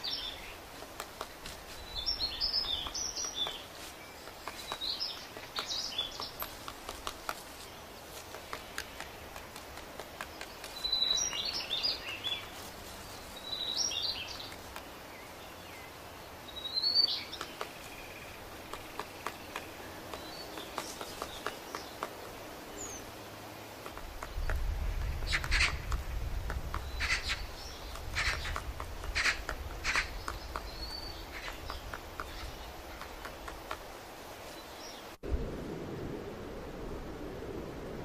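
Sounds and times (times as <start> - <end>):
woodpecker tapping on tree: 0.0 - 12.7, 13.9 - 15.0, 17.0 - 23.0, 23.7 - 34.3
high chirping bird calls: 1.7 - 6.7, 10.4 - 12.6, 15.2 - 22.2, 26.7 - 33.5.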